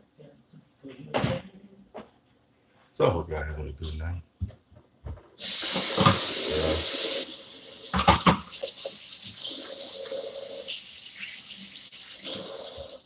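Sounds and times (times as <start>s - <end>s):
tap water running into sink: 5.4s - 13.0s.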